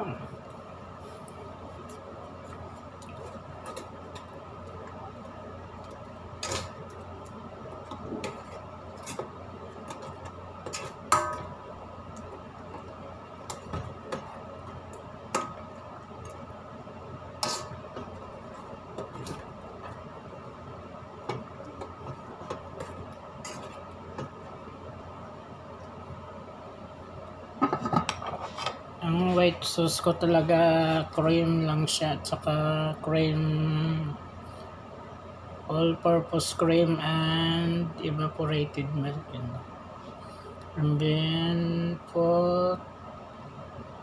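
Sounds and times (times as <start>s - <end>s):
steady hum: 0.0s - 44.0s
spoon stirring in a pot: 1.8s - 24.6s.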